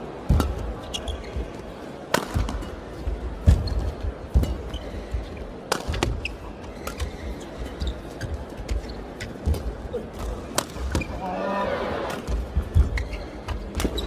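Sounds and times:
racket hitting shuttlecock: 2.1s - 2.8s, 5.7s - 7.1s, 10.5s - 11.1s.

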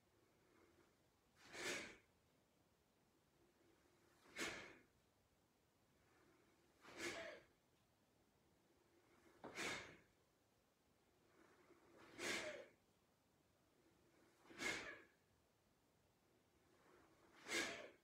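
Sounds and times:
quiet in-breaths: 0.0s - 2.1s, 5.8s - 7.5s, 11.1s - 12.8s
person exhaling forcefully: 1.4s - 2.1s, 4.2s - 4.9s, 6.8s - 7.5s, 9.4s - 10.1s, 12.0s - 12.8s, 14.4s - 15.2s, 17.3s - 18.0s.

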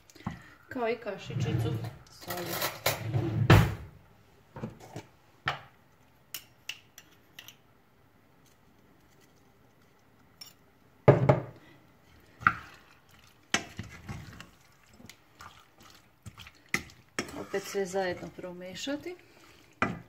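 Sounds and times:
wooden spoon stirring in pot: 11.9s - 20.0s.

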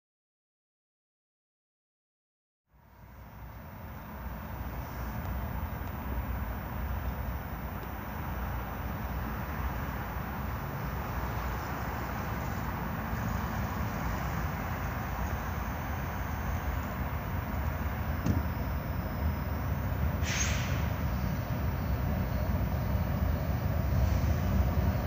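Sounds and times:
freight train rumble: 2.7s - 25.0s
brief high hiss: 20.2s - 21.0s.

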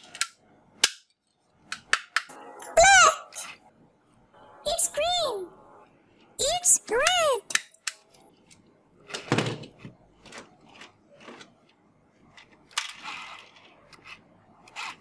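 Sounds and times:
plastic toys clattering: 7.7s - 15.0s.

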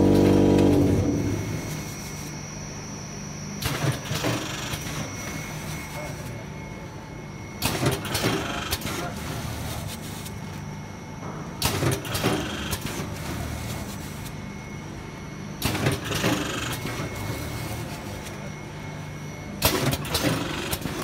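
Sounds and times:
machine noisy bursts: 0.0s - 2.5s
packing machine humming: 0.0s - 21.0s.

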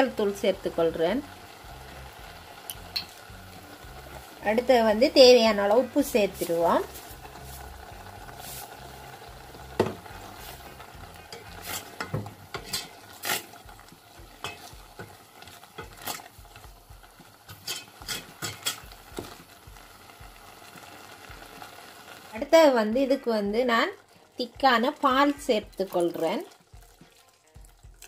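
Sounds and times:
simmering food bubbling: 0.0s - 28.0s
spatula scraping a pot: 6.1s - 9.1s, 10.1s - 16.4s, 17.5s - 19.0s.

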